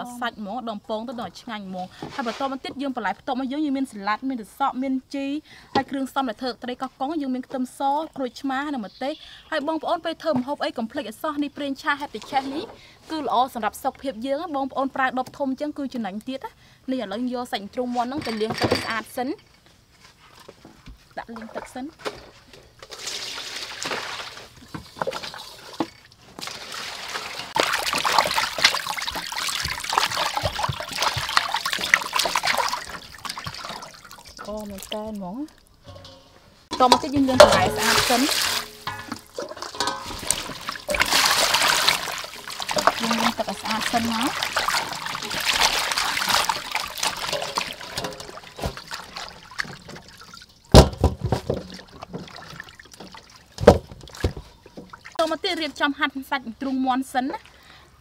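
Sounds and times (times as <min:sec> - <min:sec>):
water dripping: 0:22.8 - 0:50.9, 0:51.5 - 0:55.5
water splashing in basin: 0:22.8 - 0:55.4.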